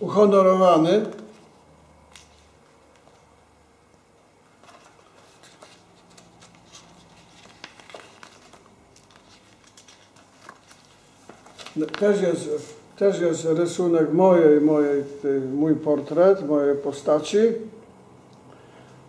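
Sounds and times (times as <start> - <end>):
paper pages rustling: 1.0 - 3.4, 4.5 - 12.9.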